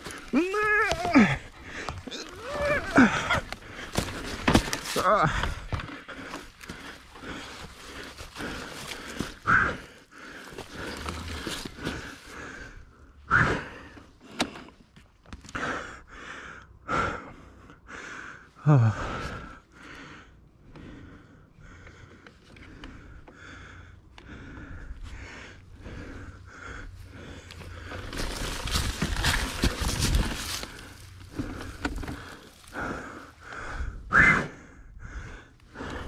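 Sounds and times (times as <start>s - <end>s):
man panting heavily: 0.0s - 14.8s, 15.4s - 36.0s
man groaning: 0.3s - 3.5s, 4.9s - 5.5s, 18.6s - 19.2s.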